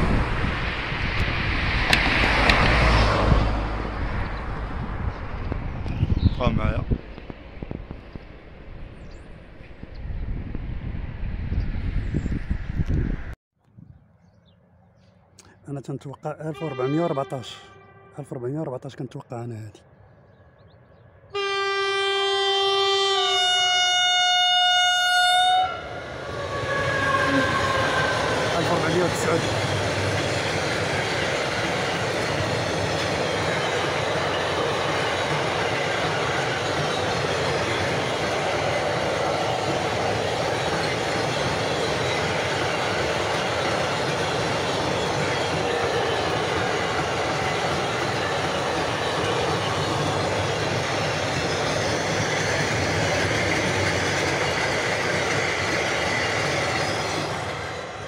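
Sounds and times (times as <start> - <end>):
freight wagons rumbling on rails: 26.0 - 58.0
high wheel squeal: 26.3 - 29.8.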